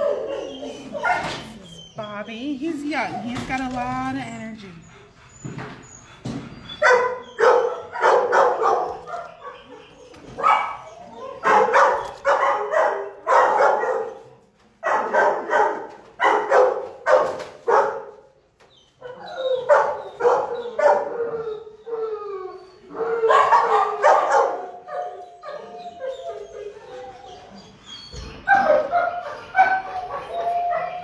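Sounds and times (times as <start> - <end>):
dogs barking: 0.0 - 2.2, 6.2 - 18.4, 19.0 - 21.8, 22.8 - 31.0
dogs yelping: 0.0 - 18.1, 18.7 - 31.0
dog howling whine: 21.1 - 23.5, 24.6 - 31.0.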